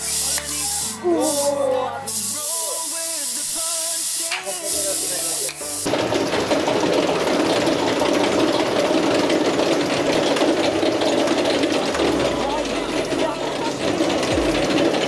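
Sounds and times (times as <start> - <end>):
roller coaster lift clattering: 5.9 - 15.0.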